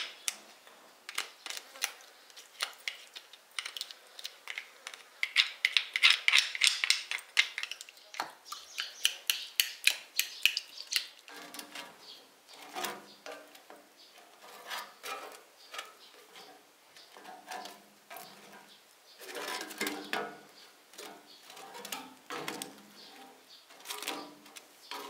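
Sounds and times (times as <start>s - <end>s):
bread scraping on metal grill grate: 11.3s - 20.2s, 20.9s - 25.0s.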